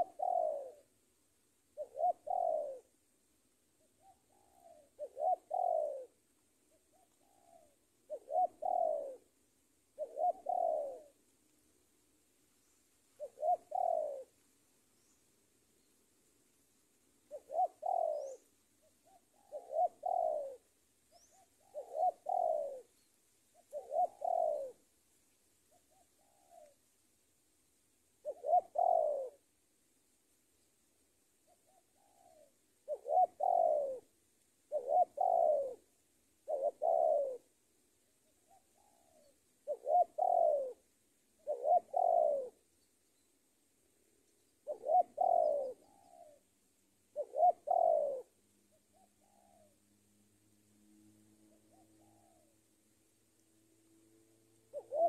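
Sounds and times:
dove cooing: 0.0 - 1.0, 1.7 - 3.0, 3.7 - 11.3, 13.1 - 15.2, 17.1 - 24.9, 25.7 - 26.8, 28.2 - 29.5, 31.4 - 42.7, 44.0 - 49.9, 51.4 - 52.7, 54.6 - 55.0.

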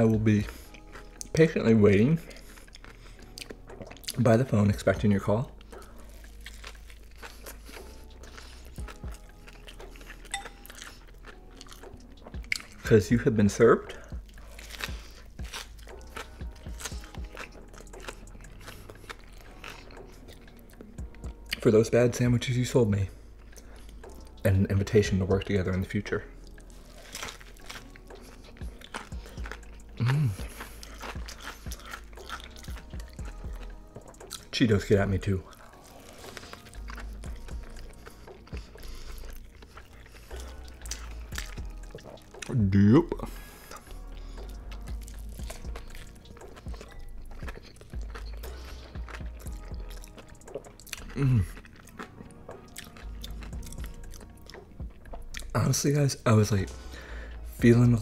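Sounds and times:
crunchy chewing: 0.0 - 58.0
soft low thumps: 54.8 - 55.5.

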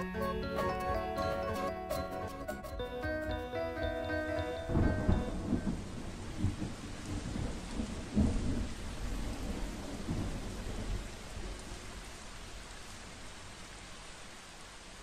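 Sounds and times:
steady rain: 3.7 - 15.0
thunder rolling: 4.2 - 11.6.

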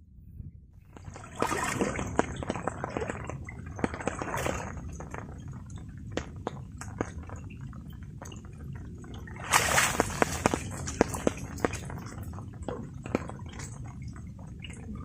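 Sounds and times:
water sloshing around person wading: 0.8 - 15.0
water drips and taps: 0.9 - 15.0
water splash: 1.0 - 5.3, 9.2 - 13.8.

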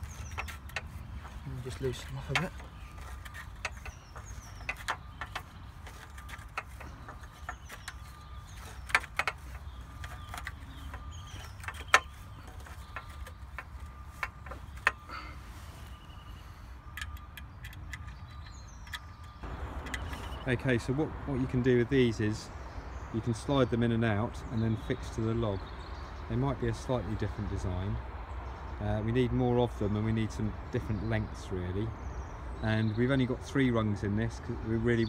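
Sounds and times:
metallic clicks and knocks: 0.0 - 15.1, 16.9 - 20.6.

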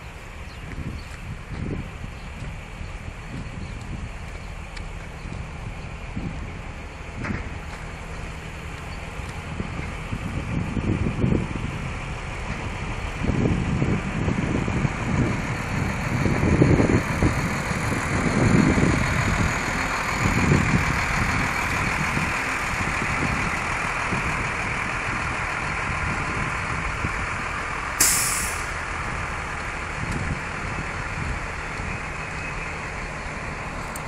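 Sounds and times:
truck engine idling: 0.0 - 34.0
air brake hiss: 28.0 - 28.8.

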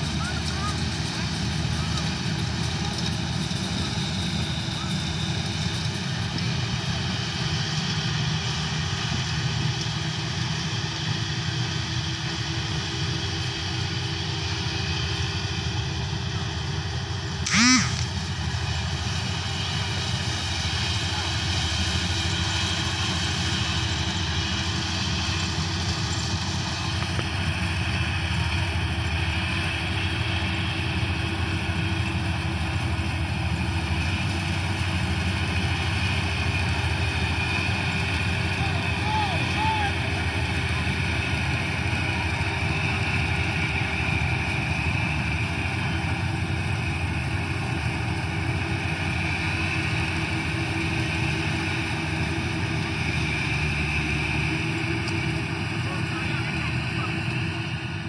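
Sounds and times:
combine harvester engine and threshing: 0.0 - 58.0
short pitched call sliding: 17.5 - 18.1.

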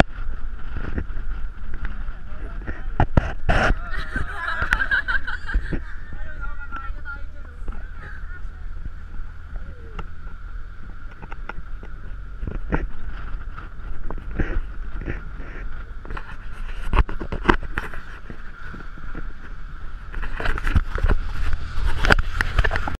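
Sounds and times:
engine and road rumble: 0.0 - 23.0
steady whine: 0.0 - 23.0
wind noise: 0.0 - 23.0.

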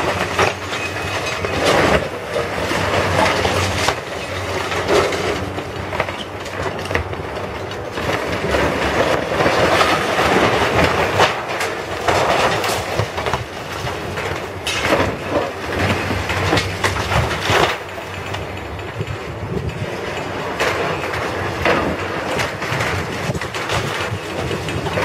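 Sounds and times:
concrete and steel crashing down: 0.0 - 18.3
diesel engine running: 0.0 - 25.0.

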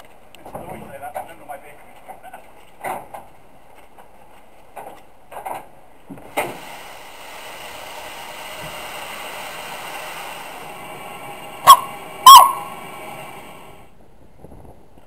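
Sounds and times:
steam hissing: 6.3 - 13.9
steam locomotive whistle blasts: 11.6 - 13.3.

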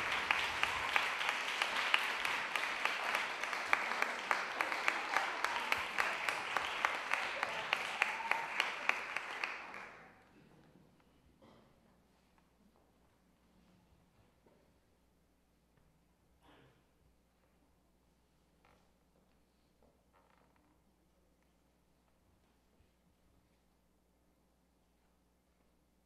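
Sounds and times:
audience applauding: 0.0 - 10.1.

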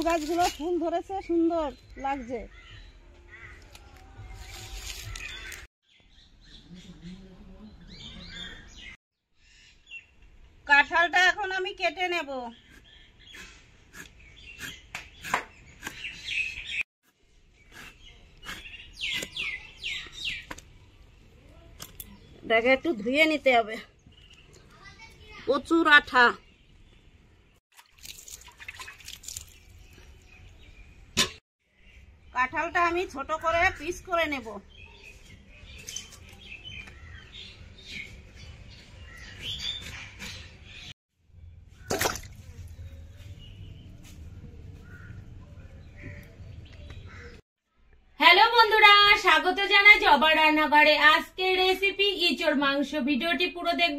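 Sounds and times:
small birds chirping: 11.2 - 27.6, 28.3 - 48.2.

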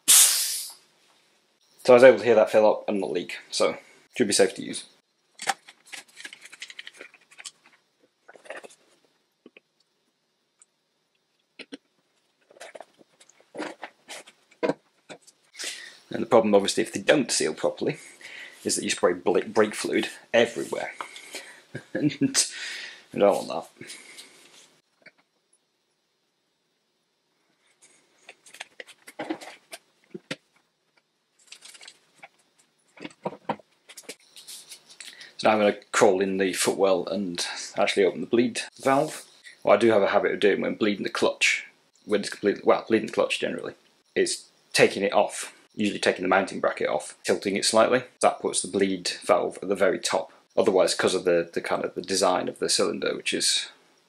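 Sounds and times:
gloved hands handling plastic bottle: 5.4 - 9.6, 31.4 - 35.2.

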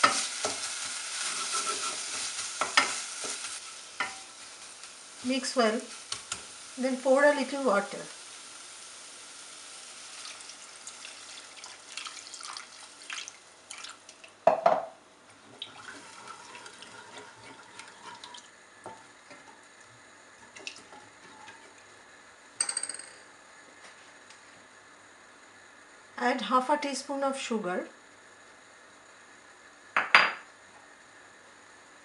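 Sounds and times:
water sizzling in hot pan: 0.0 - 14.5, 15.3 - 22.1
wooden spatula scraping pan: 1.2 - 3.4.

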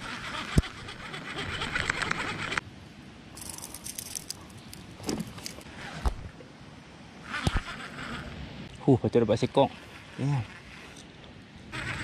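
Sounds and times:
rustling of handling: 3.4 - 6.1.

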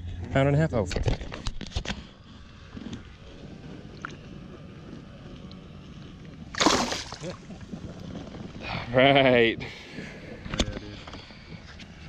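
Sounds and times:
water and wind noise: 0.9 - 12.0
loud splash: 6.5 - 7.4
small splashes: 6.5 - 7.5.

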